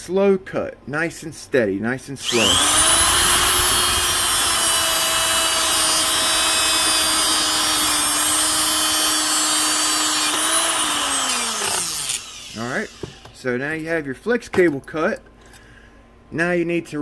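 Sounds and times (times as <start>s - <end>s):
cut-off wheel rasping through metal: 2.2s - 13.3s
grinder high whine: 2.2s - 13.4s.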